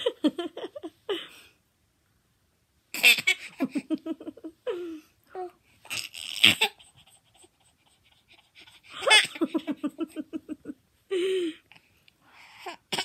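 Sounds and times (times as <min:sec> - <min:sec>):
baby laughing: 0:03.0 - 0:04.2, 0:05.9 - 0:10.6.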